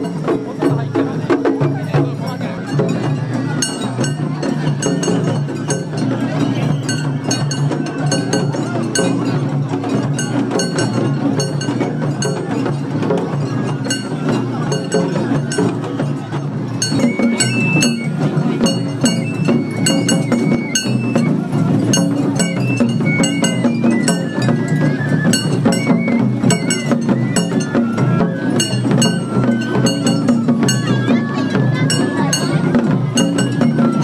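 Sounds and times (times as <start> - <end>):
drumming: 0.0 - 34.0
high flute melody: 16.8 - 34.0.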